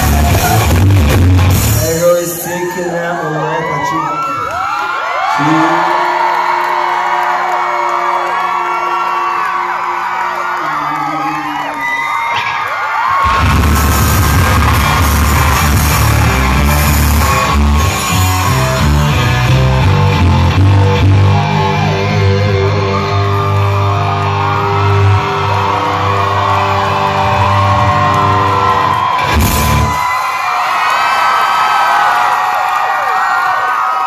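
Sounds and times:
electric guitar: 0.0s - 2.0s, 12.2s - 30.1s
live rock band playing: 0.0s - 2.4s, 13.2s - 30.1s.

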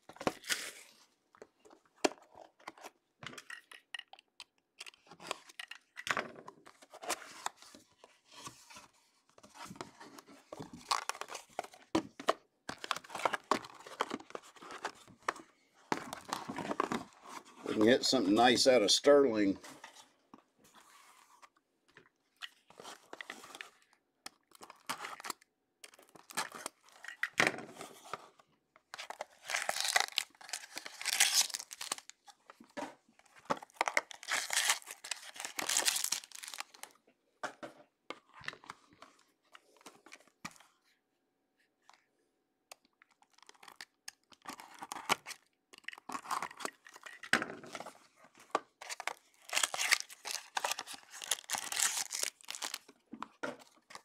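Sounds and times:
packaging crinkling and ripping: 10.6s - 11.9s, 24.4s - 27.4s, 29.0s - 32.3s, 33.6s - 36.9s, 43.2s - 47.3s, 48.8s - 53.0s.

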